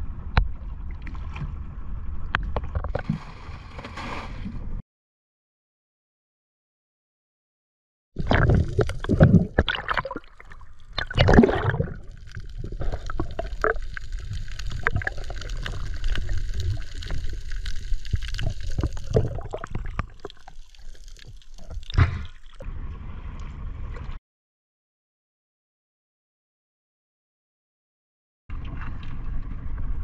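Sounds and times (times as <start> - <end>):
water gurgling and sloshing: 0.0 - 4.8, 8.2 - 24.2, 28.5 - 30.0
water surges: 8.2 - 22.6.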